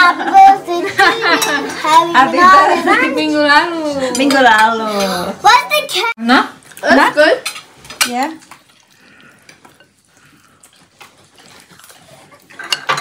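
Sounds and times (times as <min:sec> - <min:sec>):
metal tongs clinking on ceramic: 0:12.5 - 0:13.0.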